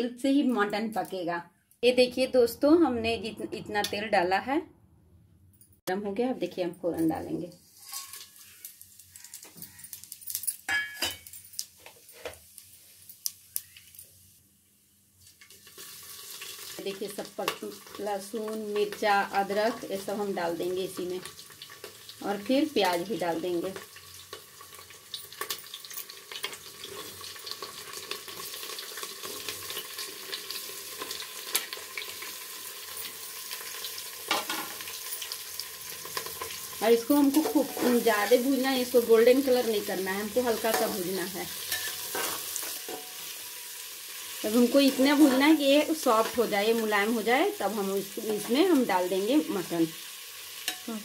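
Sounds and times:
oil sizzling and crackling: 6.9 - 51.0
steel bowl clinking on metal: 10.3 - 11.6.

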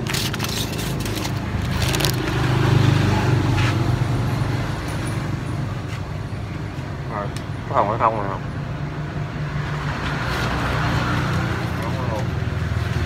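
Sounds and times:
newspaper crackling: 0.0 - 2.4
vehicle engine droning: 0.0 - 13.0.

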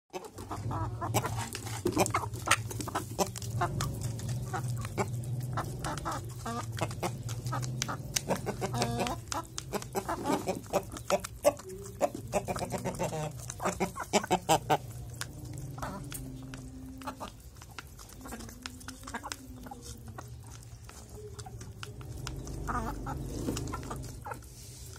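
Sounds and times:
chickens clucking: 0.1 - 24.9
beaks tapping on cup: 4.7 - 24.3.

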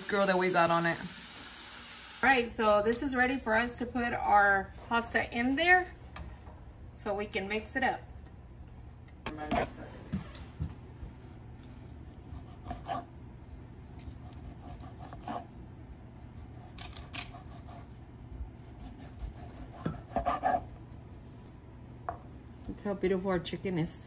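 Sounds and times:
knife tapping and scraping board: 19.6 - 20.6.

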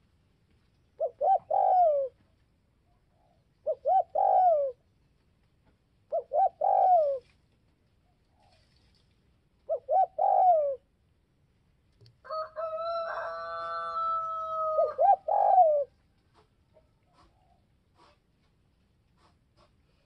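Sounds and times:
dove cooing: 1.0 - 2.3, 3.0 - 4.9, 6.1 - 7.4, 9.6 - 10.9, 13.7 - 16.5.

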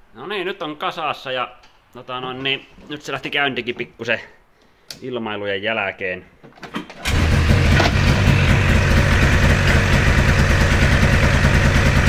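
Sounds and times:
snowmobile engine idling: 7.6 - 12.0.

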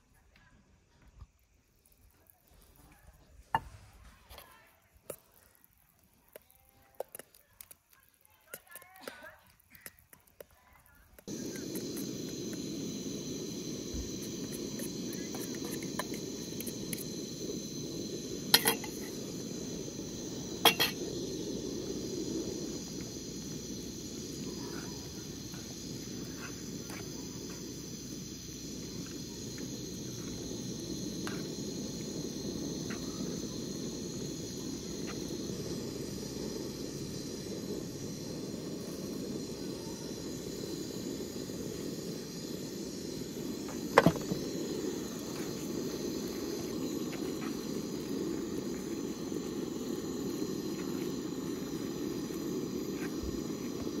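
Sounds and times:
insect chorus: 10.9 - 54.0.

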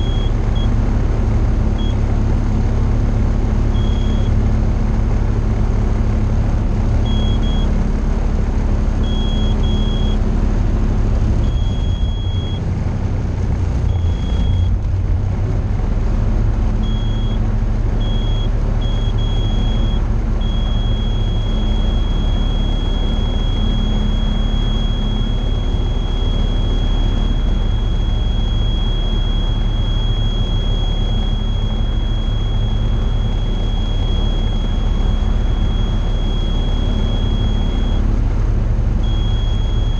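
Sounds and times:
cockpit warning tone: 0.0 - 0.9, 1.6 - 2.1, 3.6 - 4.4, 7.0 - 7.8, 8.9 - 10.3, 11.4 - 12.7, 13.8 - 14.8, 16.8 - 38.2, 39.0 - 39.9
aircraft engine running: 0.0 - 39.9.

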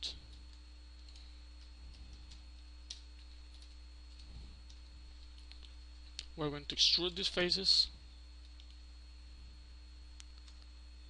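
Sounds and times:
steady low hum: 0.0 - 11.0
computer keys and mouse clicks: 0.3 - 5.7, 10.2 - 10.7.

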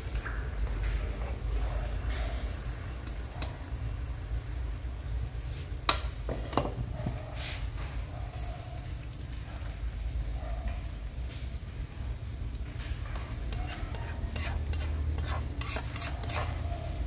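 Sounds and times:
gas burner flame rumble: 0.0 - 17.0
sauce simmering: 0.0 - 17.0
spatula scraping a pan: 13.0 - 17.0.

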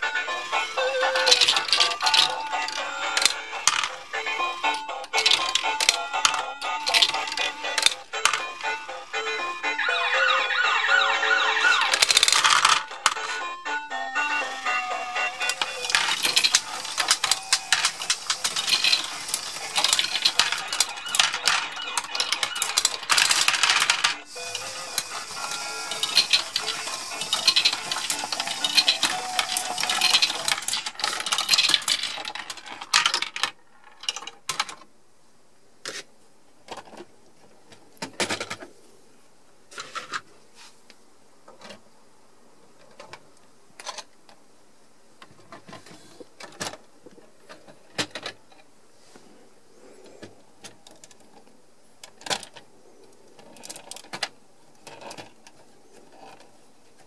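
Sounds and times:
plastic balls clattering: 0.4 - 13.4, 14.6 - 34.8, 53.4 - 56.5
plastic parts clicking: 0.7 - 8.8, 11.4 - 13.3, 15.4 - 34.9, 50.2 - 52.6, 53.3 - 57.0.

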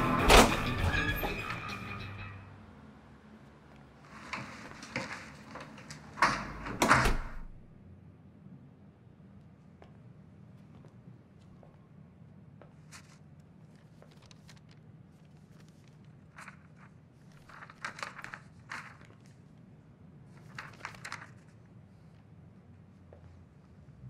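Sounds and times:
person moving about rustling: 4.0 - 7.6, 12.6 - 23.9.

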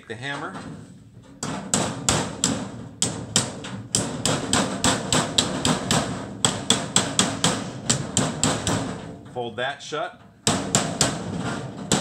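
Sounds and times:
hammer striking sheet metal: 1.4 - 9.2, 10.4 - 12.0.

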